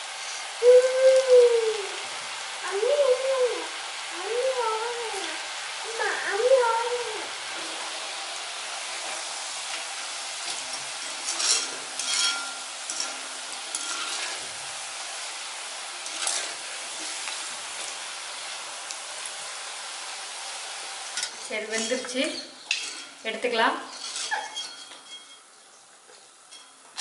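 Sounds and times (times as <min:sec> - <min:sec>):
food sizzling in hot oil: 0:00.0 - 0:27.0
skimmer clinking against pan: 0:11.0 - 0:14.1, 0:23.9 - 0:25.5.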